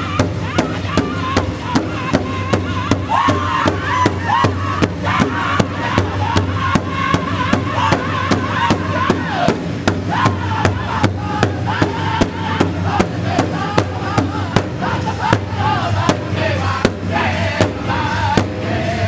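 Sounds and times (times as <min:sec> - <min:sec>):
drummers striking large drum: 0:00.0 - 0:19.0
high-pitched group singing: 0:00.0 - 0:19.0.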